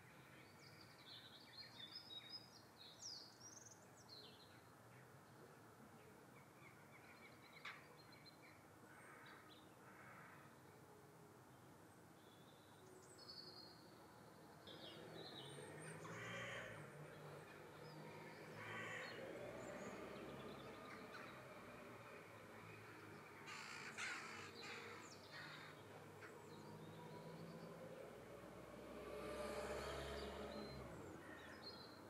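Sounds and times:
harsh rasping bird calls: 23.4 - 26.4.

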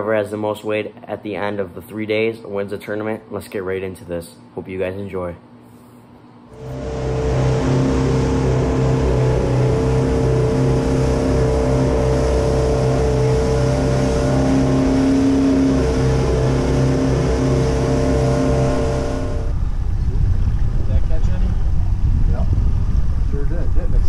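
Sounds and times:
wind and water rushing: 6.6 - 23.4
boat engine droning: 6.6 - 24.0.

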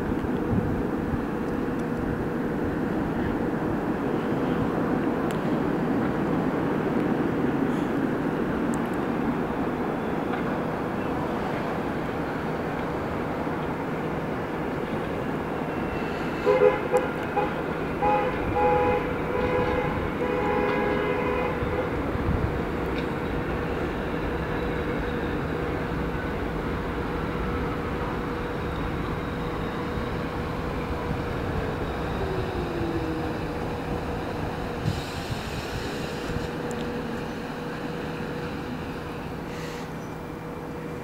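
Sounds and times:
falling train whine: 0.0 - 41.0
train rumble: 0.0 - 41.0
train horn blasts: 15.8 - 22.1.

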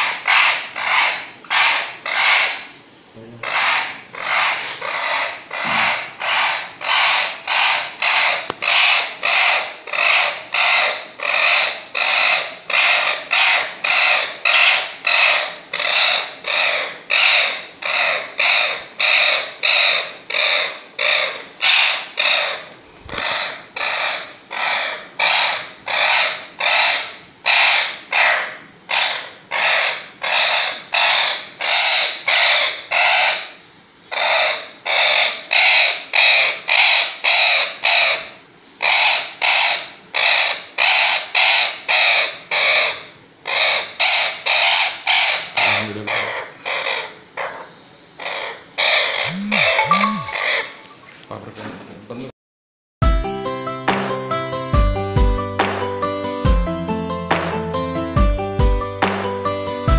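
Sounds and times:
parrot screeching: 0.0 - 2.7, 3.4 - 51.1.

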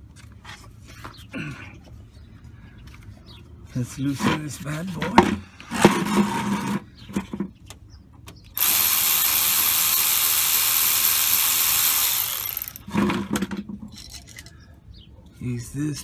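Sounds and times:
cordless power tool whining: 8.6 - 13.0.

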